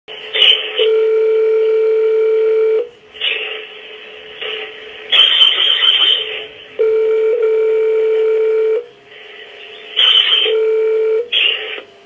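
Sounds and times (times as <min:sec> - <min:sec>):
phone line hiss: 0:00.4 - 0:02.9, 0:06.8 - 0:08.9, 0:10.0 - 0:11.9
telephone ringback tone: 0:00.8 - 0:02.9, 0:06.8 - 0:08.9, 0:10.4 - 0:11.3
crackling noise: 0:03.1 - 0:06.8.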